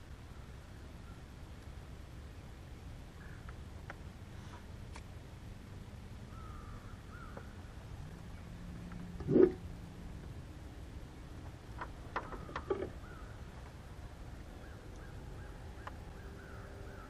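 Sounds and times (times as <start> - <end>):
faint bird calls: 3.1 - 3.6, 6.3 - 7.7, 12.1 - 13.6, 14.5 - 17.0.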